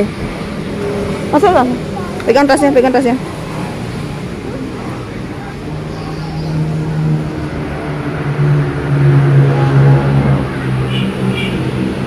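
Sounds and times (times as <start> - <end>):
low engine hum: 0.0 - 11.0.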